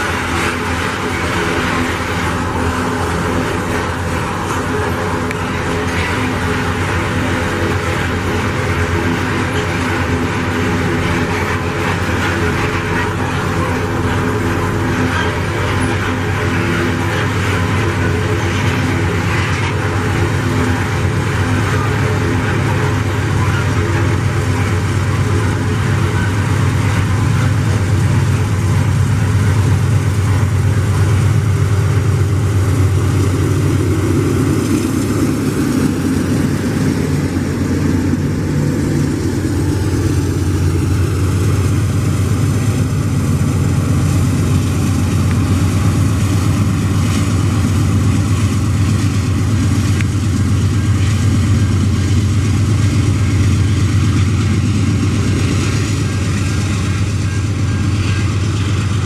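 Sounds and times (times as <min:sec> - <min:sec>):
locomotive low drone: 0:00.0 - 0:59.0.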